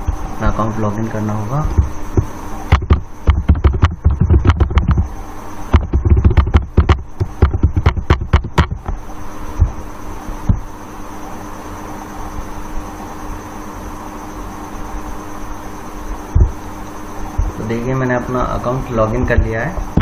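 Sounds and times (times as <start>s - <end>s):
electrical hum with hiss: 0.0s - 20.0s
laptop keyboard typing: 2.7s - 5.1s, 5.7s - 8.9s.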